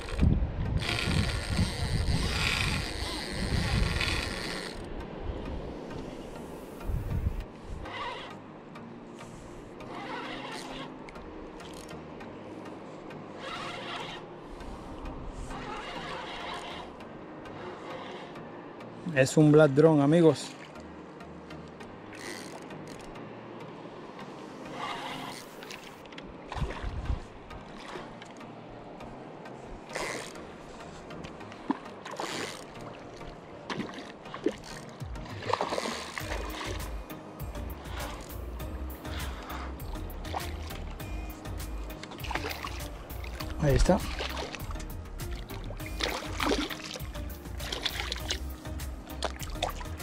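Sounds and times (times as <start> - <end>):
fishing reel gears whirring: 0.0 - 5.0, 6.7 - 8.4, 9.8 - 12.0, 13.3 - 18.4, 22.1 - 23.2, 24.7 - 26.0, 29.9 - 50.0
low water noise: 0.0 - 50.0.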